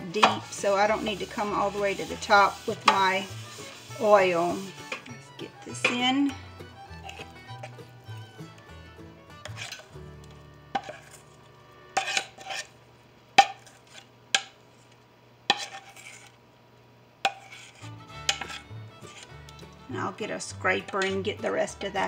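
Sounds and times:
soft background music: 0.0s - 12.4s, 17.8s - 22.0s
metal spoon scraping bowl: 0.1s - 8.6s, 9.3s - 10.0s, 10.7s - 12.8s, 15.5s - 16.4s, 17.3s - 22.0s.

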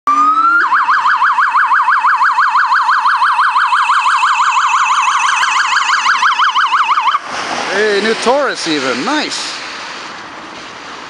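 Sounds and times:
police siren on fast yelp: 0.1s - 7.2s.

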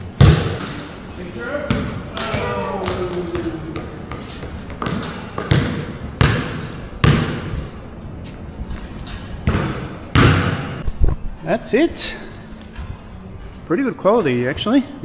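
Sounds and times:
basketball bouncing on hard court: 0.2s - 0.7s, 1.7s - 7.7s, 9.4s - 10.8s.

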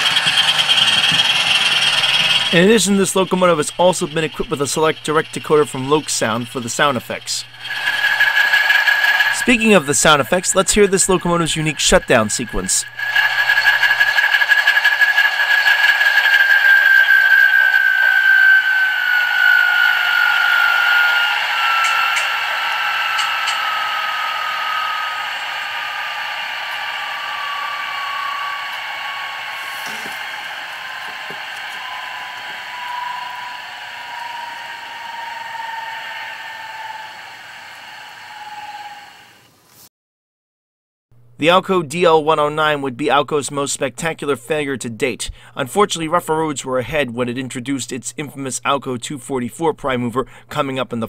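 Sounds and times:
diesel engine hum from small speaker: 0.0s - 8.2s
whine falling in pitch: 0.0s - 39.4s
model locomotive engines running down: 0.0s - 39.6s.

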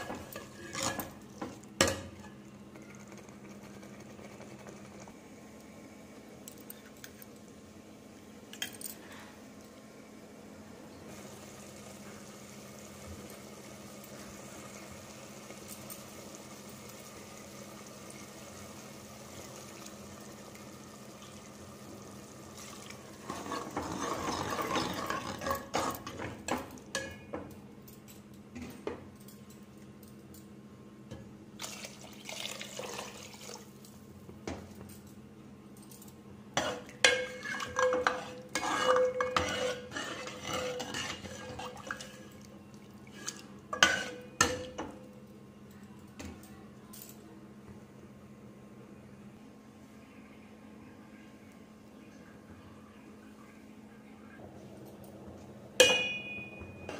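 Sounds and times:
metal clinks against pot: 55.8s - 56.9s.

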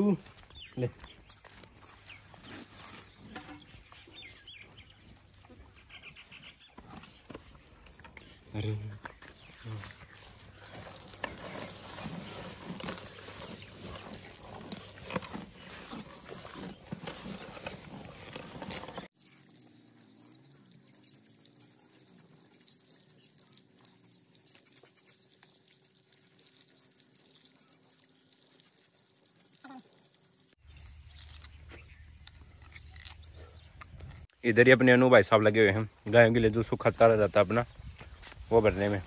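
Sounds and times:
calves munching leaves: 0.0s - 20.9s, 24.5s - 35.5s, 36.7s - 39.0s
water trickling from a tap: 19.2s - 30.6s.

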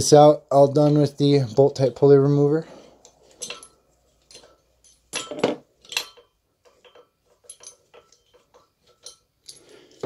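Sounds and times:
metal clinking and knocking: 3.2s - 10.0s.

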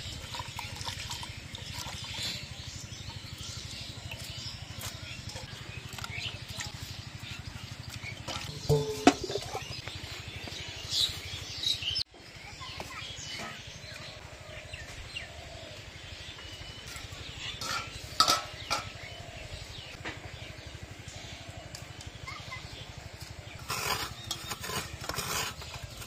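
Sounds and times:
birds chirping: 0.0s - 26.0s
steel bowls and plates clinking: 8.1s - 9.8s, 17.5s - 19.0s.

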